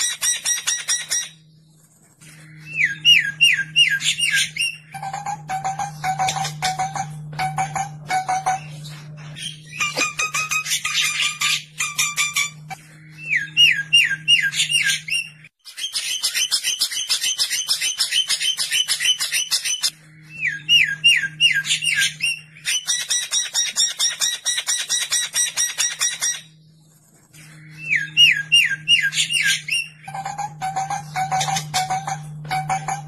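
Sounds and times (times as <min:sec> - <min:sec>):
bird harsh chattering rattles: 0:00.0 - 0:01.4.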